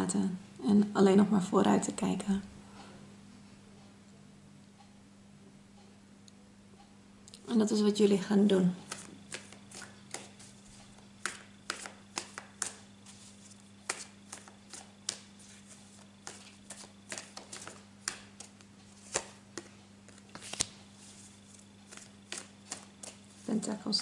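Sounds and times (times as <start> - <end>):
steady low hum: 0.0 - 24.0
cards being shuffled: 8.8 - 23.7.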